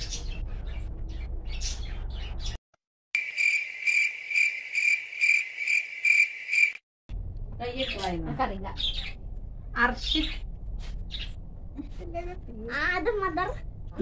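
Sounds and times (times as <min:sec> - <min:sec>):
cricket chirping: 0:03.2 - 0:06.8.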